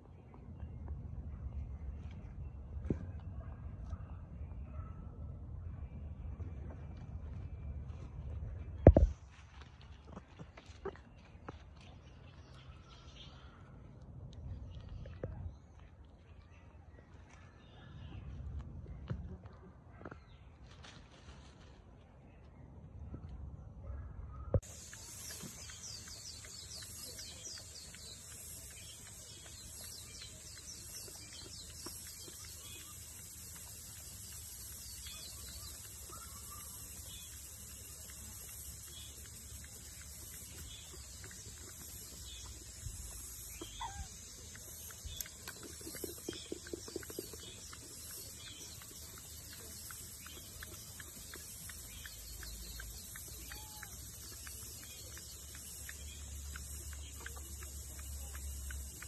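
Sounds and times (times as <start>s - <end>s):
small birds chirping: 23.8s - 59.0s
high-pitched hiss: 24.6s - 59.0s.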